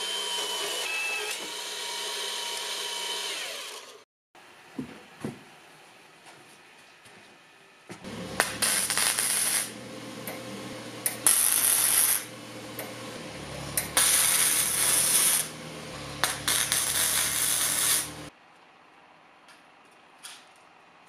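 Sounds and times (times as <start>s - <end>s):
welding arc crackling and hissing: 8.0s - 13.1s, 13.8s - 18.3s.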